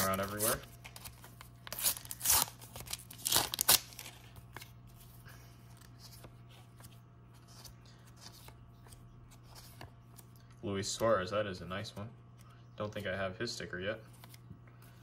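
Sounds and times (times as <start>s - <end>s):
foil wrapper crinkling: 0.0s - 4.4s
low steady hum: 0.0s - 15.0s.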